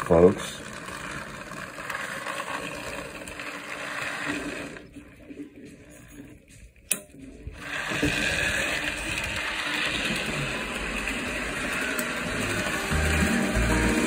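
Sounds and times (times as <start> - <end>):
model train motor whirring: 0.0 - 6.1, 6.9 - 14.0.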